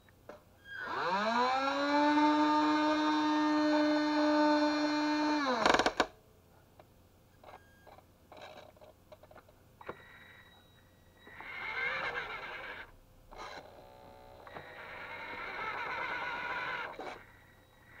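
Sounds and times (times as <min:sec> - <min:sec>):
toy motor and gears whirring: 0:11.3 - 0:18.0.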